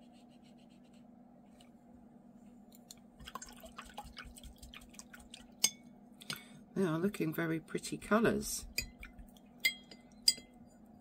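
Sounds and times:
brush scratching on paper: 0.0s - 1.1s
low steady hum: 0.0s - 11.0s
water drips: 2.9s - 5.8s, 8.7s - 9.8s.

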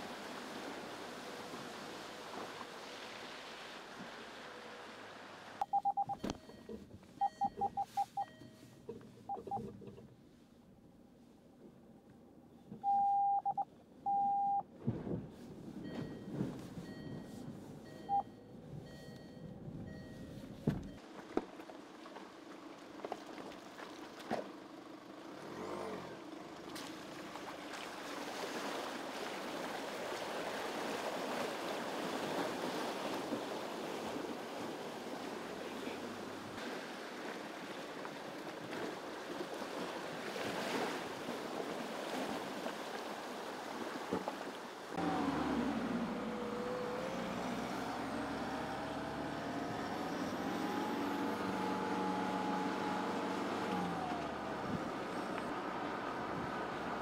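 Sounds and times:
water rushing and splashing: 0.0s - 6.1s, 25.3s - 57.0s
car engine running low: 11.7s - 27.8s, 45.0s - 57.0s.

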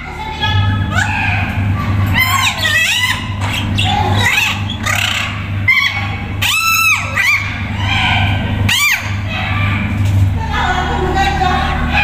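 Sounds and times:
parrot calling: 0.9s - 9.9s.

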